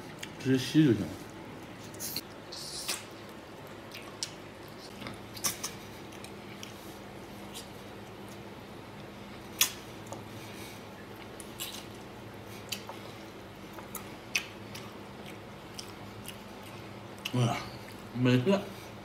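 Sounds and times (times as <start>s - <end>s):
low steady hum: 0.0s - 19.0s
wet chewing and sucking: 1.2s - 8.4s, 9.6s - 18.1s
sharp mouth smacks: 2.8s - 3.1s, 5.4s - 5.8s, 9.6s - 9.8s.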